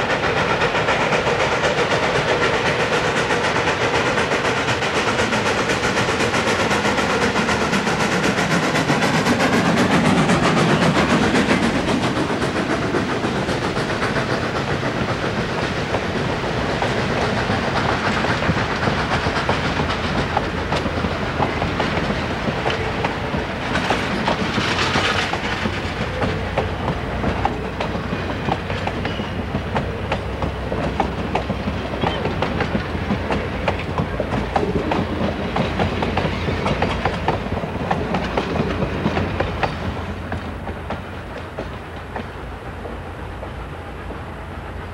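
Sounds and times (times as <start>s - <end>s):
steam hiss: 0.0s - 44.9s
steam locomotive passing: 0.0s - 44.9s
train wheels clicking over rail joints: 0.0s - 44.9s.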